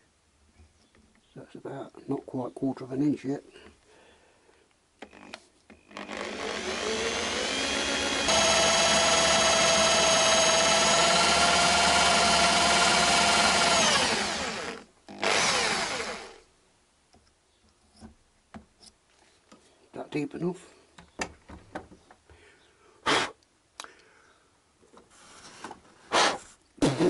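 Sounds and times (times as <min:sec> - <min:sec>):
electric drill whining: 0:05.0 - 0:16.4.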